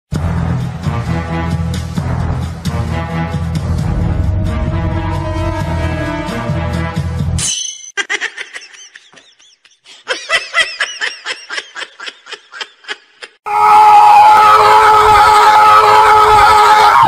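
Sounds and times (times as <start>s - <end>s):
high-pitched giggling: 8.0s - 13.4s.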